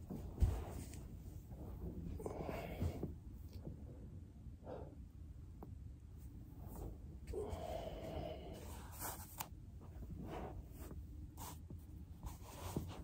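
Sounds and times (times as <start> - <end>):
rustling on carpeted floor: 0.0 - 3.6, 8.6 - 13.0.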